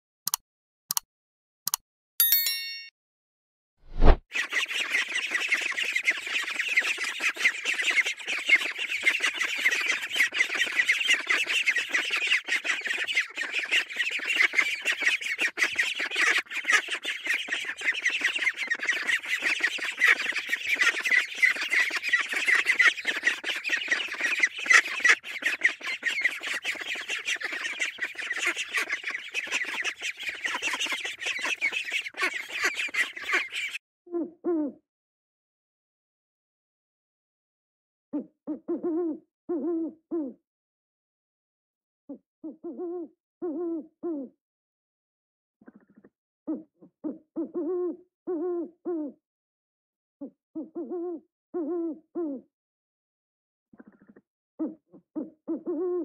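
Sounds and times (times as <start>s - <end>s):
sharp click: 0.3s - 1.0s
ducklings peeping: 4.4s - 33.8s.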